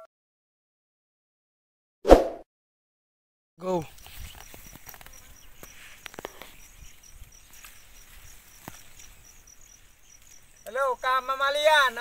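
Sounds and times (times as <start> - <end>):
cricket chirping: 3.6 - 12.0
footsteps rustling through vines: 3.9 - 10.8.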